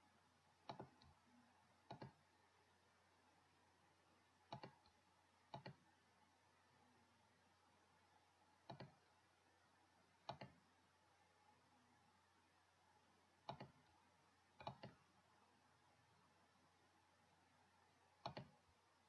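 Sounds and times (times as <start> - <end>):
faint room hiss: 0.0 - 19.0
computer mouse clicks: 0.6 - 1.2, 1.8 - 2.2, 4.4 - 5.8, 8.6 - 9.2, 10.2 - 10.6, 13.4 - 14.0, 14.6 - 15.1, 18.2 - 18.6.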